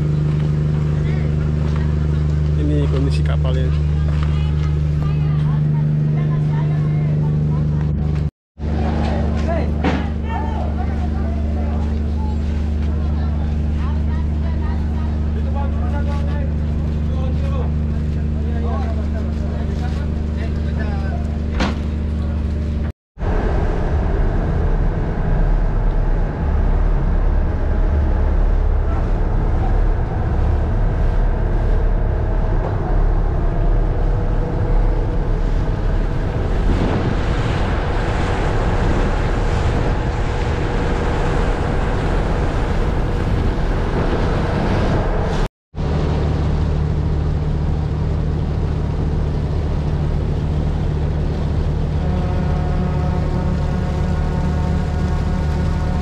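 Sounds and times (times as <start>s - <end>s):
ship engine running: 0.0s - 56.0s
water rushing along hull: 0.0s - 56.0s
wind on microphone: 23.2s - 46.0s.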